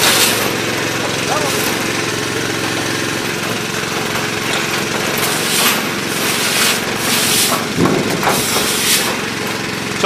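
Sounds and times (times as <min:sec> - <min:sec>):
pump motor humming: 0:00.0 - 0:10.0
spray nozzles hissing: 0:05.2 - 0:09.3.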